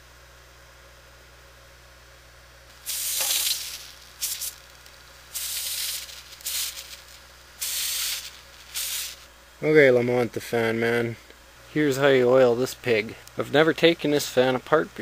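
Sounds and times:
aerosol spray can hissing: 0:02.7 - 0:04.7, 0:05.3 - 0:09.3.

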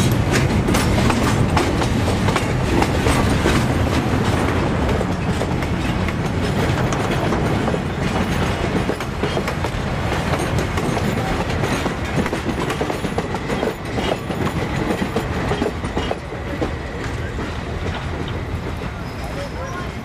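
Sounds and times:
train wheels clattering over rail joints: 0:00.0 - 0:20.0.

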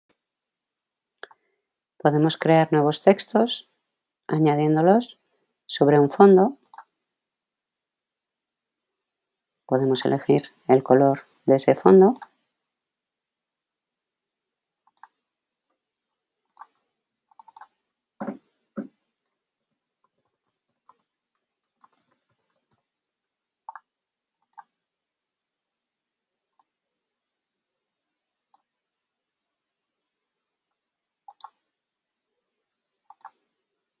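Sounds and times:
computer mouse clicks: 0:06.6 - 0:07.0, 0:12.0 - 0:12.4, 0:14.8 - 0:15.2, 0:16.5 - 0:18.4, 0:19.2 - 0:22.8, 0:23.7 - 0:24.8, 0:31.2 - 0:31.7, 0:33.1 - 0:33.5.

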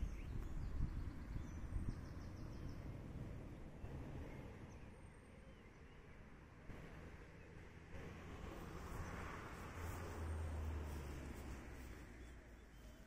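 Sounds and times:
wind rumble on microphone: 0:00.0 - 0:04.8
faint bird chirps: 0:12.2 - 0:13.0.

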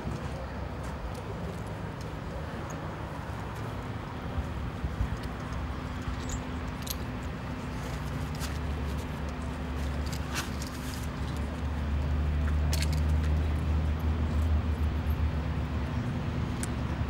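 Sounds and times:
light metallic clinks: 0:05.1 - 0:07.4.

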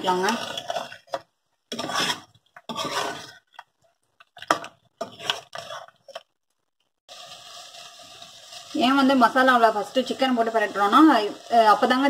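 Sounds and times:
metal ladle scraping pot: 0:00.0 - 0:03.7, 0:04.4 - 0:06.2.

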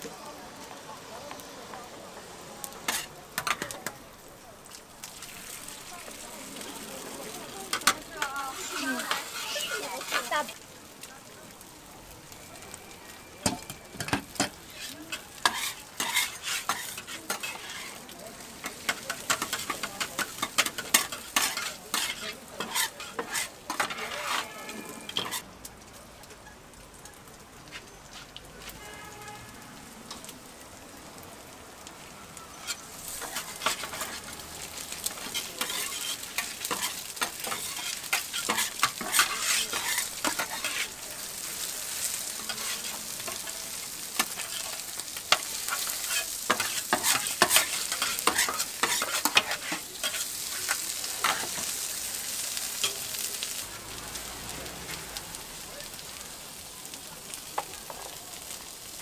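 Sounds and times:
steady sizzle: 0:00.0 - 0:59.0
metal spatulas clacking on griddle: 0:02.9 - 0:04.0, 0:07.7 - 0:08.4, 0:13.4 - 0:17.8, 0:18.6 - 0:24.5, 0:35.1 - 0:40.9, 0:44.2 - 0:51.7.

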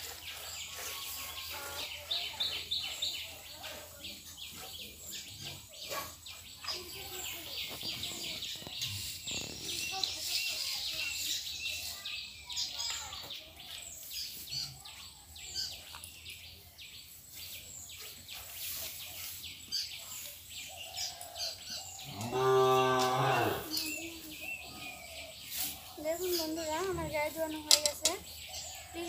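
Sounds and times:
birds chirping: 0:00.0 - 0:29.0
cow mooing: 0:22.1 - 0:23.8.

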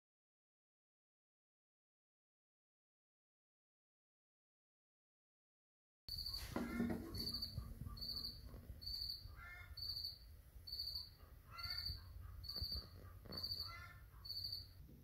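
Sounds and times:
cricket chirping: 0:06.1 - 0:14.8
lower-pitched calls: 0:06.1 - 0:14.8.

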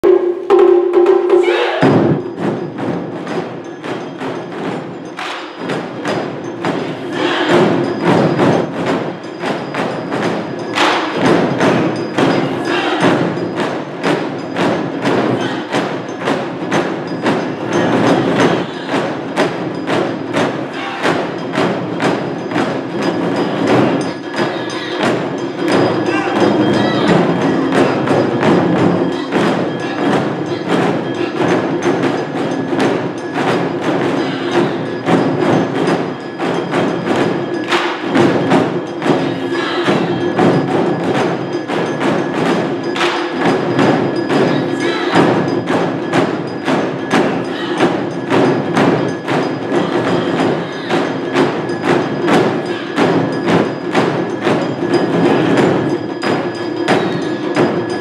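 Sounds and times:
taiko drums playing: 0:00.0 - 0:58.0.

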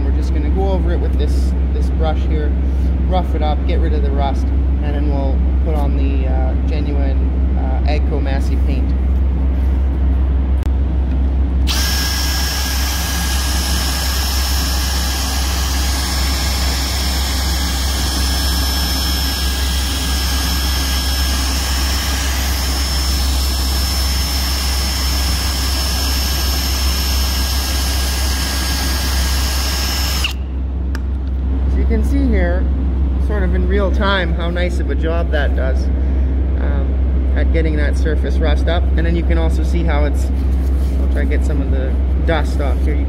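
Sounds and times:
cordless drill whine: 0:11.6 - 0:30.5.

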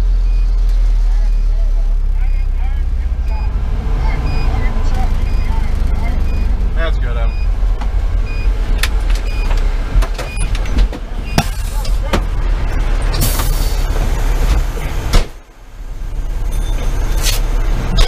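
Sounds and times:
diesel engine rumbling: 0:00.0 - 0:18.0
faint short beeps: 0:04.2 - 0:06.6
rattles and knocks: 0:08.7 - 0:12.4
sharp thump: 0:14.5 - 0:15.4.

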